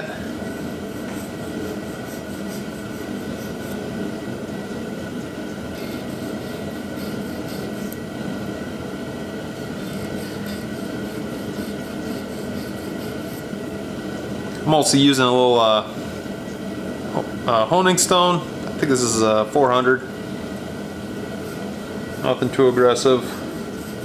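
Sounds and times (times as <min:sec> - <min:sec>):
heater whirring: 0:00.0 - 0:24.0.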